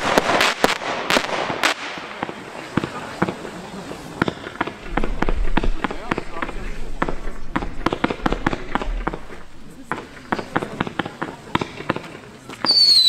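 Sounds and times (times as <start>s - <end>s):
fireworks shots firing: 0.0s - 13.0s
falling firework whistle: 12.6s - 13.0s.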